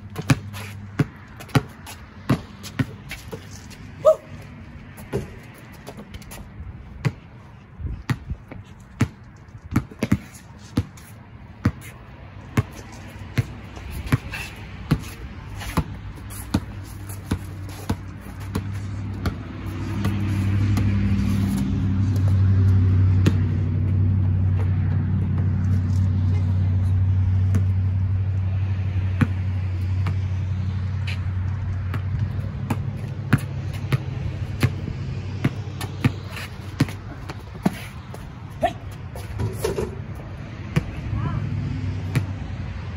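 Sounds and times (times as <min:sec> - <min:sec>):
basketball bouncing on concrete: 0:00.0 - 0:26.2, 0:26.9 - 0:41.3, 0:42.0 - 0:42.6
low engine hum: 0:11.4 - 0:42.9.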